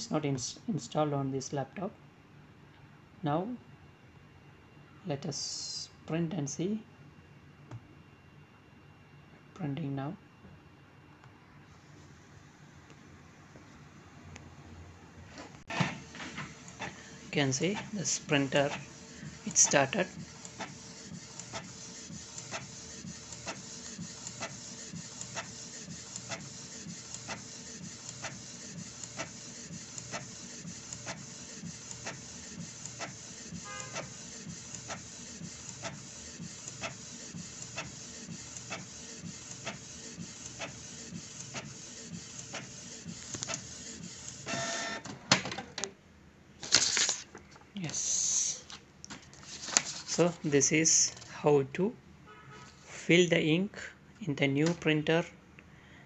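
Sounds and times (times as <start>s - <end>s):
printer ticking: 15.7s - 45.0s
inkjet printer whirring: 15.7s - 45.1s
printer clatter: 15.7s - 45.8s.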